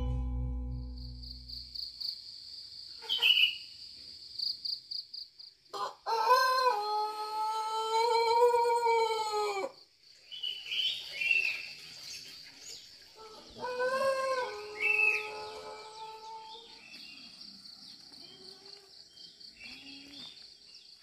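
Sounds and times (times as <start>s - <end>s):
rooster crowing: 5.8s - 9.7s, 13.5s - 16.5s.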